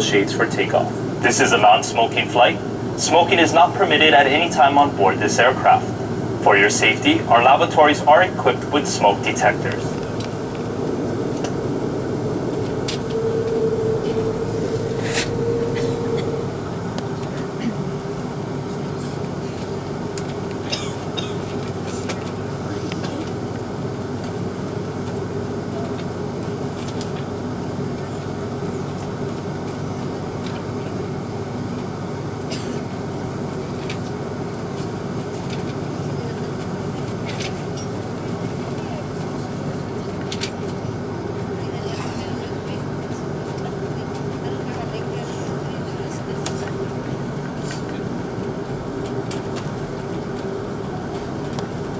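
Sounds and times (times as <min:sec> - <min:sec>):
steady whine: 0:00.0 - 0:20.7
jet engine and cabin air hum: 0:00.0 - 0:51.9.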